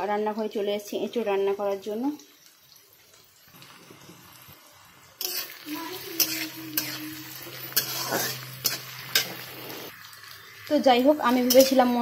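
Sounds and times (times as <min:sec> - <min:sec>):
onions sizzling in hot oil: 0:00.0 - 0:12.0
metal spatula scraping pan: 0:05.2 - 0:10.0, 0:11.2 - 0:12.0.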